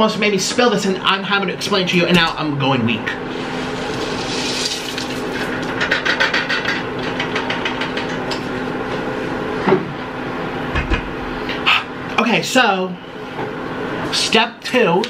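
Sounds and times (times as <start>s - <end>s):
boiling water hissing: 3.2s - 5.8s
rustling and scraping: 3.3s - 5.8s.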